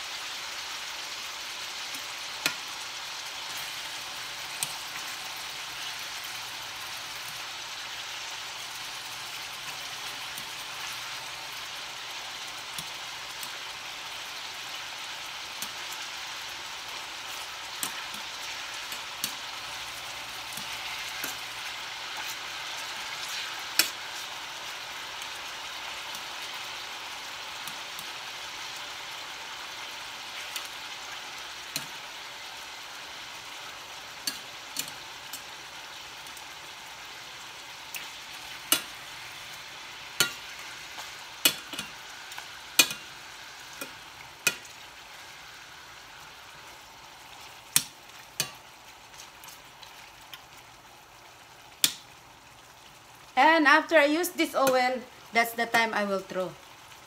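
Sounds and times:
beef sizzling in a pan: 0.0 - 57.0
metal tongs clicking on a pan: 1.8 - 2.7, 4.5 - 5.0, 12.6 - 13.6, 15.5 - 16.0, 17.3 - 24.4, 26.0 - 26.5, 27.6 - 28.2, 30.4 - 30.8, 31.7 - 32.0, 34.2 - 35.5, 37.9 - 39.0, 40.2 - 43.1, 43.7 - 44.7, 47.7 - 48.6, 51.8 - 52.1.

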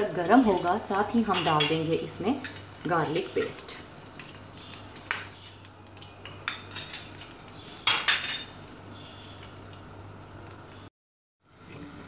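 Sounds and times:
spoon clinking against clay pot: 1.3 - 1.8.

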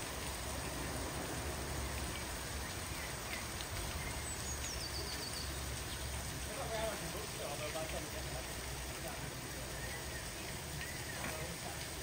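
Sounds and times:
bird chirp: 2.6 - 6.1.

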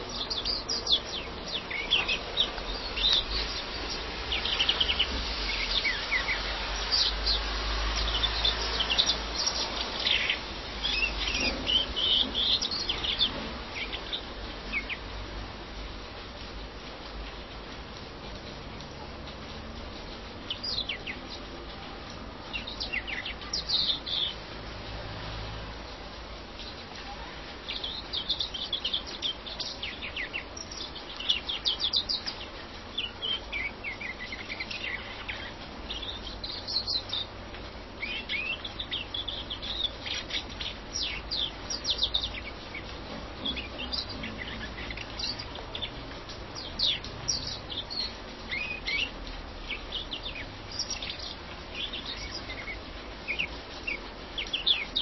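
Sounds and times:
finch twittering chirps and trills: 0.0 - 15.2, 20.3 - 24.6, 27.6 - 55.0.

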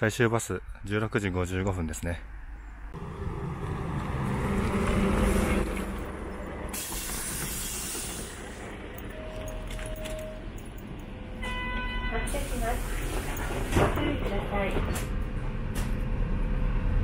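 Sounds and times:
bus engine running: 2.9 - 11.5, 12.2 - 17.0
compressed air hiss: 6.7 - 8.6, 12.3 - 13.4
short tone: 9.0 - 10.5.

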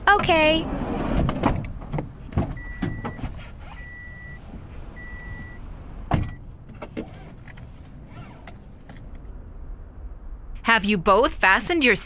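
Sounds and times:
sliding door clicks and knocks: 0.8 - 3.4.

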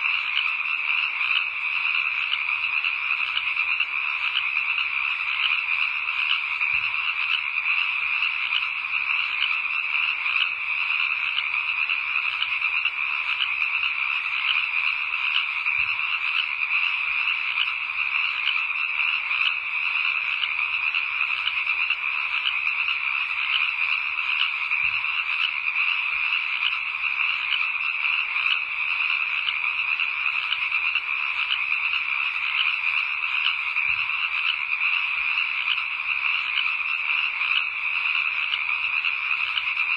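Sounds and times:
frogs croaking: 0.0 - 39.9.

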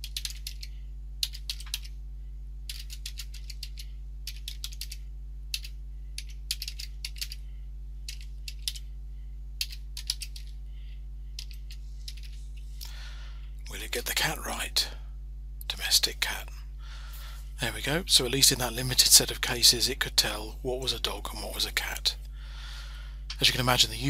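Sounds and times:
keyboard typing: 0.0 - 2.0, 2.6 - 7.4, 8.0 - 8.9, 9.6 - 10.6, 11.4 - 12.4
steady low hum: 0.0 - 24.0.

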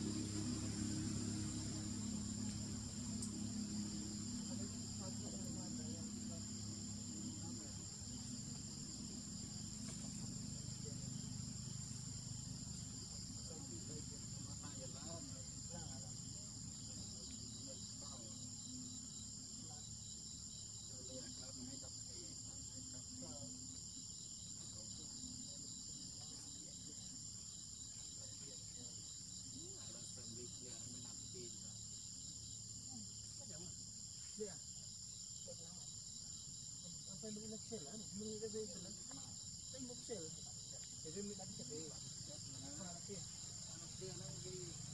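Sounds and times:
low steady hum: 0.0 - 34.0
shrill insect chorus: 0.0 - 44.9.

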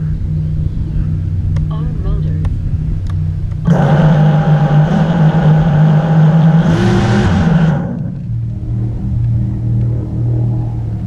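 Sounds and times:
drone motors whining: 0.0 - 11.0
drone hiss burst: 3.6 - 11.0.

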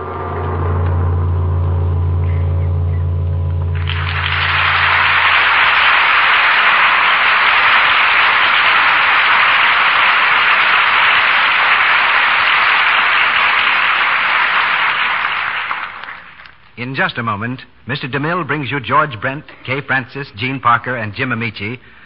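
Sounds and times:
orchestra held chord: 0.0 - 10.8
studio audience applauding: 3.8 - 16.7.

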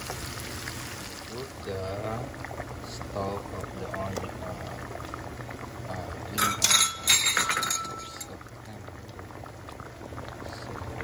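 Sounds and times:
stew bubbling in pot: 0.0 - 11.0
kitchenware clinking: 6.4 - 8.4.

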